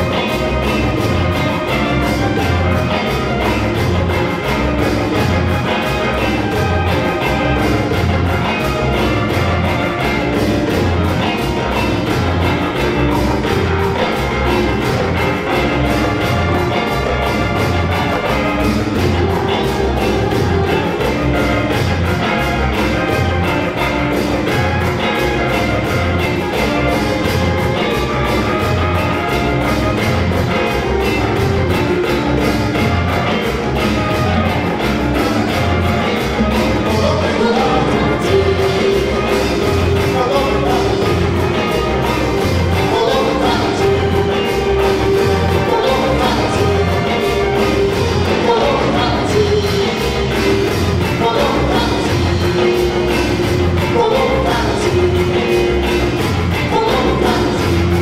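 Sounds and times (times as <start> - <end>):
afrobeat band groove: 0.0 - 58.0
congas and hand percussion: 0.0 - 58.0
repeating bass line: 0.0 - 58.0.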